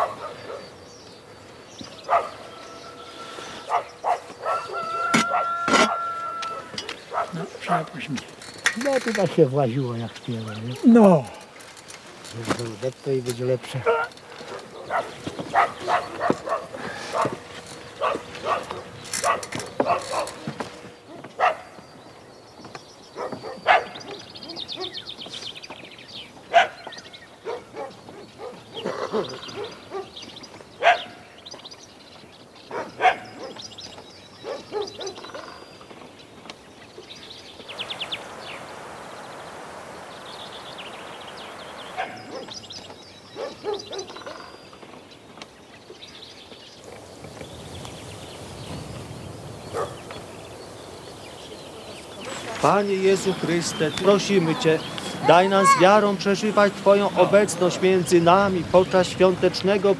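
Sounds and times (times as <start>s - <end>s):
dog barking: 0.0s - 0.7s, 2.0s - 2.5s, 3.6s - 7.9s, 13.8s - 17.4s, 18.0s - 20.4s, 21.1s - 21.8s, 23.2s - 25.0s, 26.5s - 30.2s, 30.8s - 31.2s, 32.7s - 33.6s, 34.4s - 35.5s, 42.0s - 42.6s, 43.4s - 44.4s, 49.7s - 50.1s
birds chirping: 0.0s - 59.9s.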